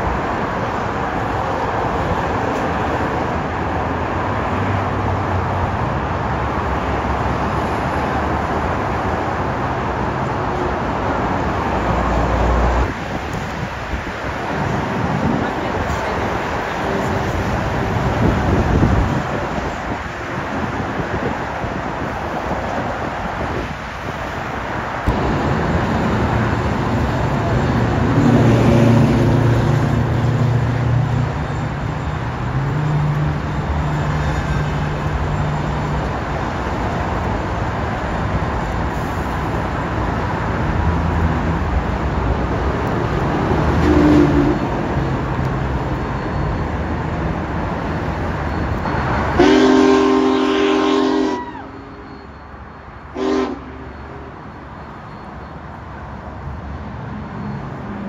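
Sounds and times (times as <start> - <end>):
steam whistle: 43.8 - 44.6, 49.3 - 52.3, 53.2 - 54.0.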